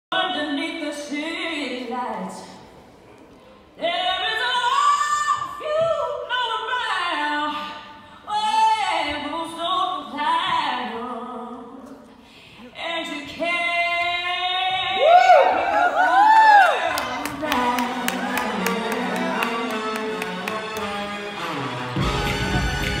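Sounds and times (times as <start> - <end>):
woman singing with vibrato: 3.8 - 20.4.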